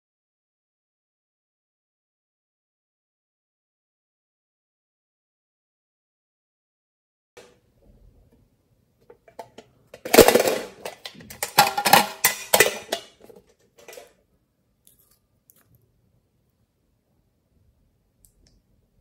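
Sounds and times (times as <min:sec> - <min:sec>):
metal tin box clanking and rattling: 0:09.3 - 0:14.2.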